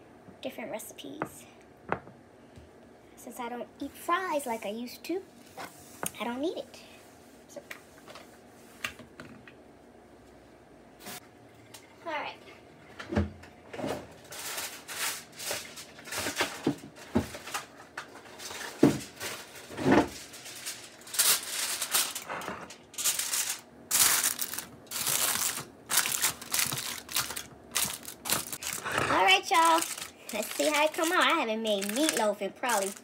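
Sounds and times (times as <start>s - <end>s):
aluminium foil crinkling: 14.2s - 33.0s.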